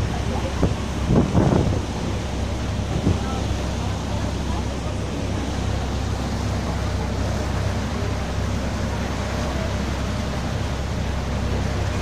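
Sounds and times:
boat engine rumble: 0:00.0 - 0:12.0
churning water rushing: 0:00.0 - 0:12.0
wind: 0:00.0 - 0:12.0.

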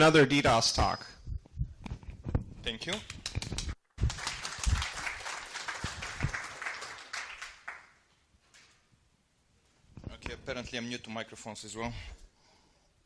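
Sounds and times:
low thumps: 0:01.2 - 0:02.7
audience applauding: 0:04.0 - 0:08.0.

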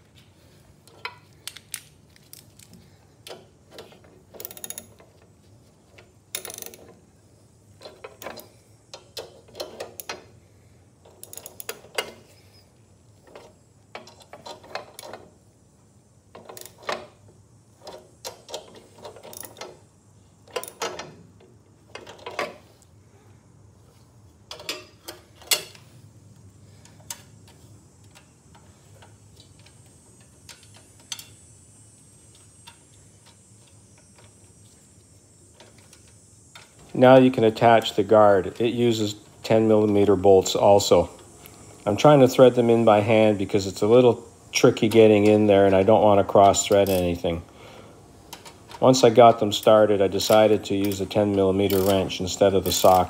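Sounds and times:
socket ratchet clicking: 0:00.9 - 0:05.2, 0:06.3 - 0:07.0, 0:11.0 - 0:12.2, 0:16.4 - 0:17.0, 0:17.8 - 0:19.8, 0:46.4 - 0:47.3, 0:49.5 - 0:53.0.

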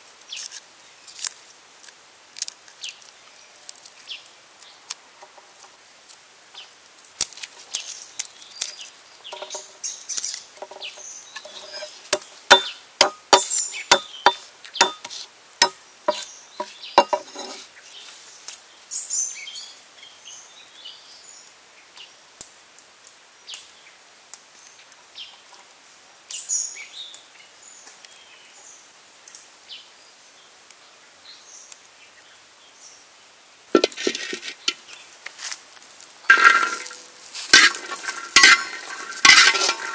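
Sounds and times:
birds chirping: 0:07.6 - 0:18.1, 0:33.8 - 0:35.2, 0:36.2 - 0:39.9
utensils clattering: 0:10.6 - 0:17.6, 0:33.8 - 0:34.8, 0:36.3 - 0:39.9.

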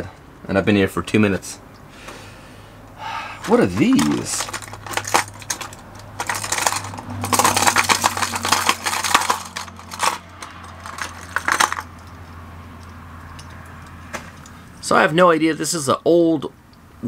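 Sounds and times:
fishing lures clattering: 0:03.4 - 0:14.6.

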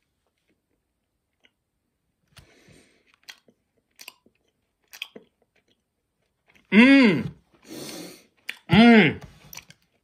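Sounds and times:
wet chewing clicks and smacks: 0:03.1 - 0:06.7.

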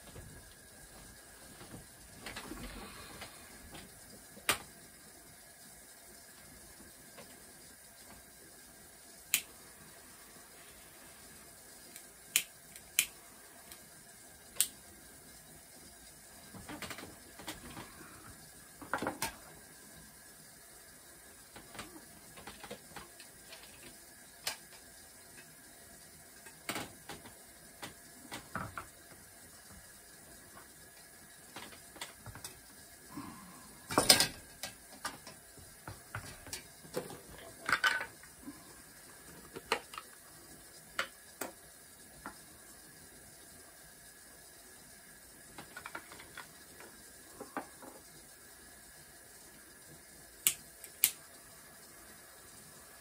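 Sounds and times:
objects clicking and knocking: 0:33.9 - 0:38.2.

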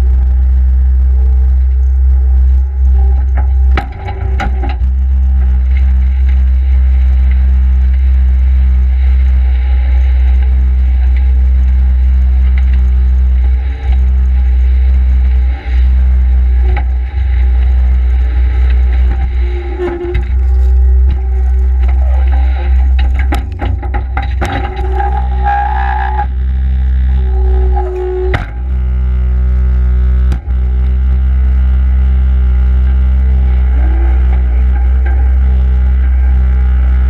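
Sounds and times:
diesel engine droning: 0:00.0 - 0:37.0.

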